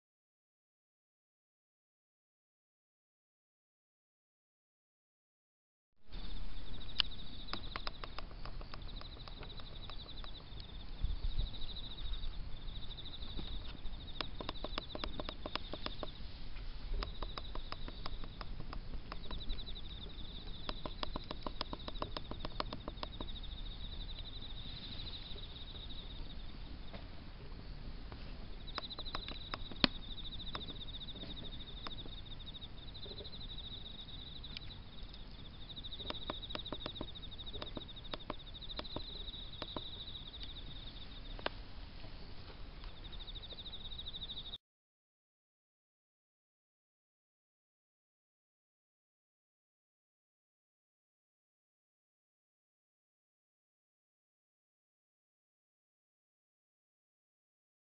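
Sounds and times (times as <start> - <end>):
insects chirping in pulsing trill: 6.1 - 44.6
sharp click: 6.8 - 10.7, 13.4 - 16.2, 17.0 - 23.4.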